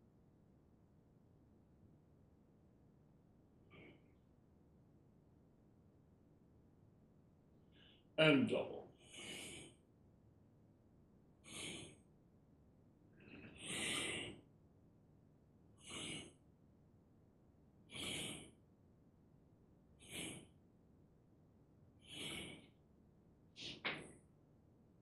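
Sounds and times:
person breathing with hissing breaths: 9.0s - 9.8s, 11.4s - 12.2s, 13.1s - 14.5s, 15.8s - 16.4s, 17.9s - 18.6s, 20.0s - 20.6s, 22.0s - 22.8s.

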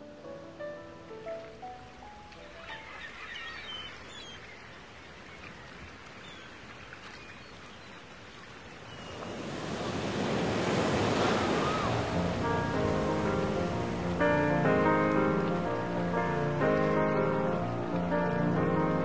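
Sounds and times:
surf washing over rocks: 1.2s - 19.0s
faint bird calls: 2.4s - 9.5s
wave breaking: 8.9s - 19.0s.

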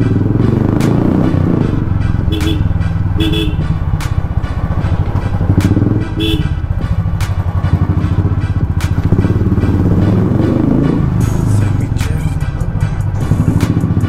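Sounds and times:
motorcycle engine thumping: 0.0s - 14.0s
horn beeps: 2.0s - 4.5s, 5.2s - 7.0s.

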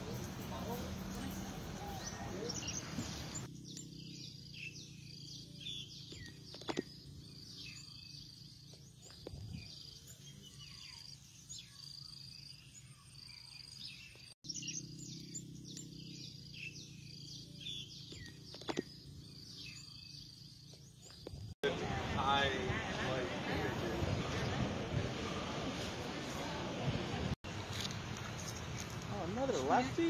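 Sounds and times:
insects calling: 0.0s - 21.6s
birds trilling and chirping: 0.0s - 26.8s.

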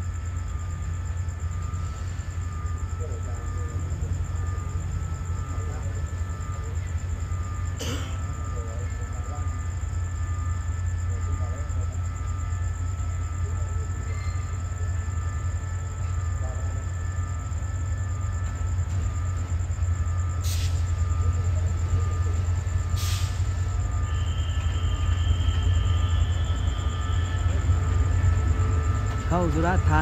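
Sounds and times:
train rumbling: 0.0s - 30.0s
brief hisses: 23.0s - 23.5s.

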